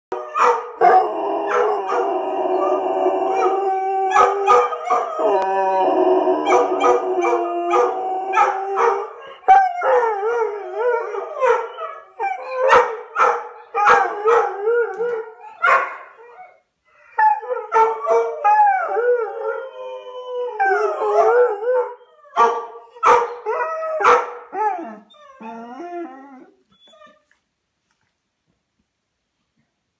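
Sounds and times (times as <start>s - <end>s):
dog howling: 0.1s - 13.0s, 17.2s - 22.3s
dog barking: 0.3s - 2.0s, 4.1s - 5.1s, 6.4s - 9.1s, 12.6s - 14.5s, 15.6s - 16.2s, 22.4s - 23.4s, 24.0s - 24.4s.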